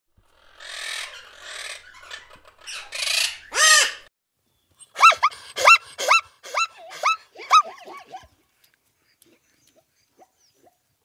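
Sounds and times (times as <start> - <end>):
parrot squawking: 0.4 - 4.1, 5.0 - 8.2.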